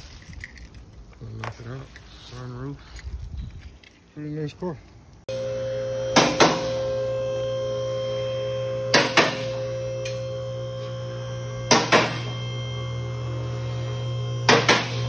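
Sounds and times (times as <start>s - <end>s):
droning music tone: 5.3s - 15.0s.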